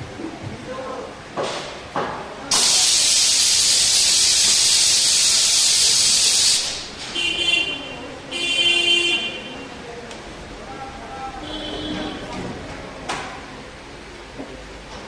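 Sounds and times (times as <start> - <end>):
loud steady hiss: 2.5 - 7.3.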